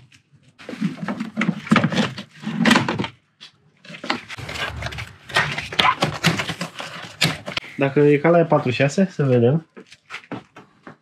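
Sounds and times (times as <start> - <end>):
engine parts and tools clattering: 3.9 - 7.7.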